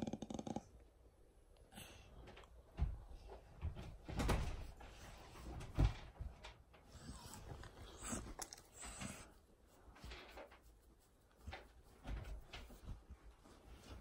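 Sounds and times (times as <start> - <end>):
dogs romping thumps and clattering: 2.7 - 6.9.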